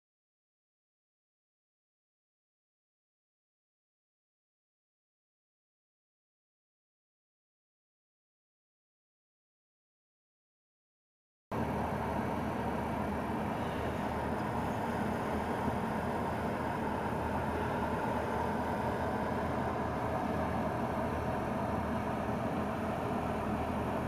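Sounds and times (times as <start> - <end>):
car engine and road noise: 11.6 - 24.0.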